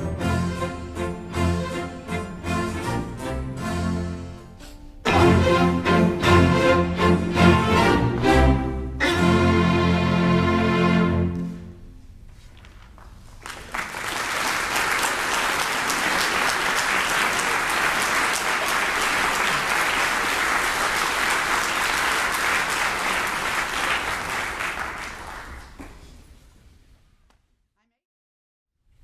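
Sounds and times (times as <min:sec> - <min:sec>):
string orchestra chord: 0:00.0 - 0:11.9
audience applause: 0:13.4 - 0:25.9.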